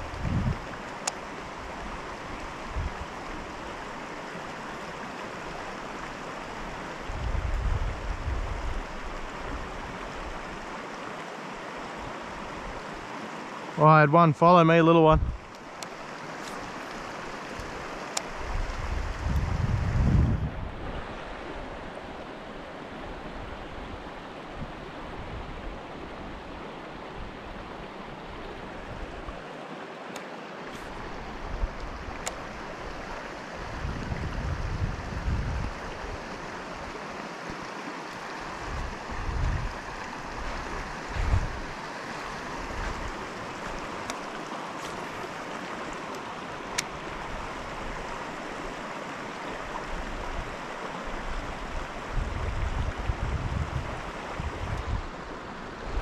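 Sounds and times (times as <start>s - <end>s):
wind buffeting microphone: 0.0s - 0.8s, 1.7s - 3.2s, 7.0s - 9.7s, 15.1s - 15.5s, 18.3s - 21.7s, 33.6s - 36.9s, 38.5s - 41.8s, 42.5s - 44.1s, 51.2s - 55.2s
creek water rushing: 0.0s - 56.0s.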